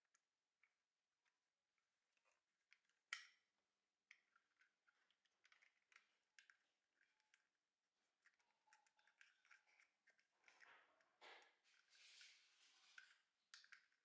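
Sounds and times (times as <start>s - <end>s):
small clicks and scrapes of camera: 4.1s - 10.7s, 11.4s - 14.0s.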